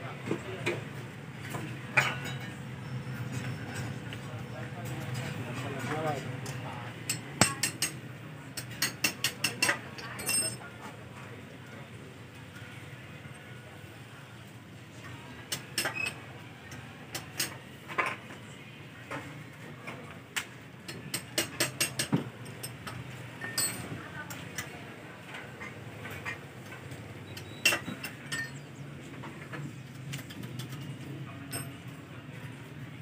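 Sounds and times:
metal tools clinking on engine: 0:02.0 - 0:04.0, 0:08.6 - 0:10.6, 0:21.0 - 0:24.0, 0:27.2 - 0:28.6, 0:30.2 - 0:32.0.

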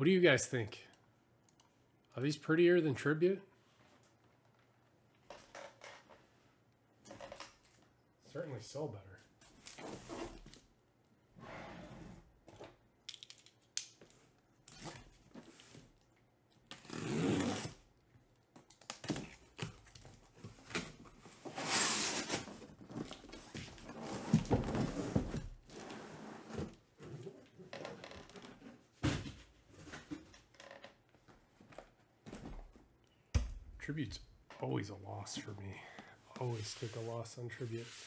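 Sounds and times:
tape and cardboard tearing: 0:16.7 - 0:17.9, 0:21.4 - 0:22.7.

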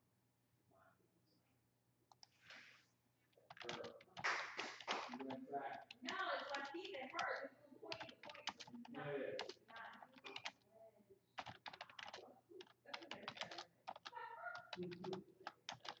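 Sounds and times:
keyboard typing clicks: 0:03.5 - 0:04.2, 0:04.8 - 0:10.6, 0:11.4 - 0:16.0
murmur of voice: 0:04.8 - 0:16.0.

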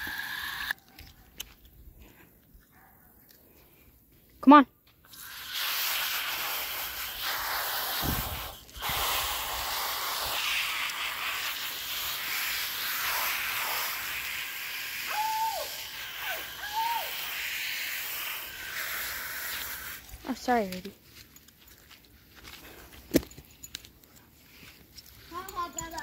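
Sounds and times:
garden hose spraying water: 0:00.0 - 0:00.8, 0:05.0 - 0:21.0.

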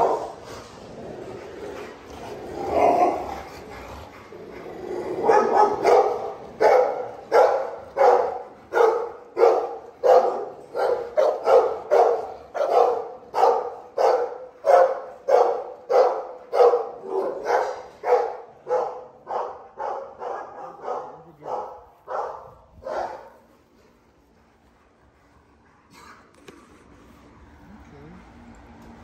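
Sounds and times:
dog barking: 0:00.0 - 0:00.4, 0:05.2 - 0:23.4.

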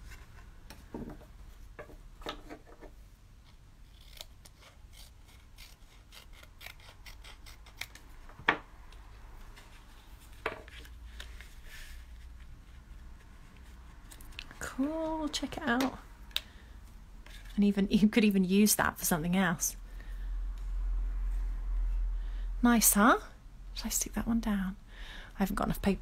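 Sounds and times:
scissors snipping paper: 0:03.5 - 0:08.2.

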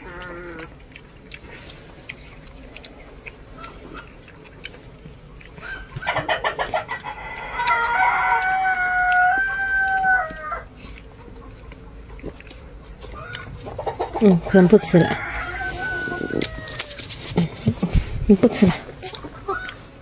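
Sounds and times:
rooster crowing: 0:07.1 - 0:10.7, 0:14.5 - 0:17.1.

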